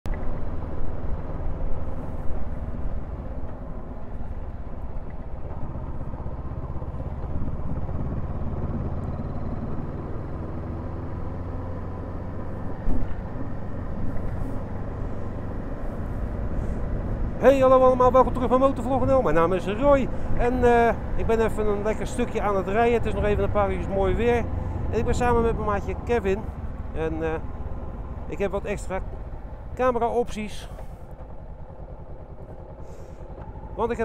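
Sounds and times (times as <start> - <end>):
motorcycle engine running: 0.1 - 34.0
road noise: 0.1 - 34.0
wind noise: 1.6 - 10.6.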